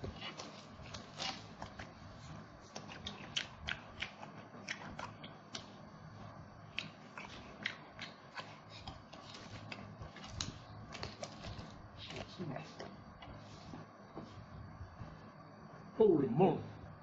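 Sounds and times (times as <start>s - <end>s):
mouth chewing with wet smacks: 2.7s - 5.7s, 6.7s - 9.9s.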